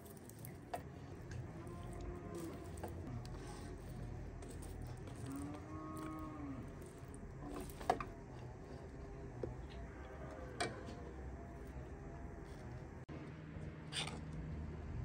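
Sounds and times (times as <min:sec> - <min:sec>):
cow lowing: 0:01.1 - 0:11.9.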